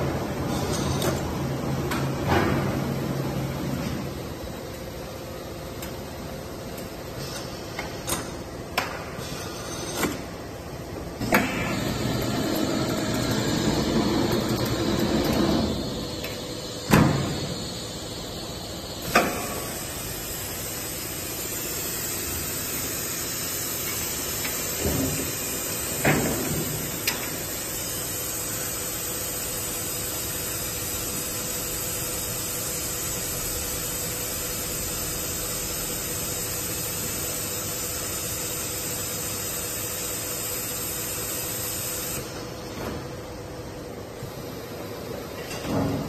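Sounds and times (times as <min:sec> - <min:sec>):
machine hissing: 0:11.2 - 0:42.5.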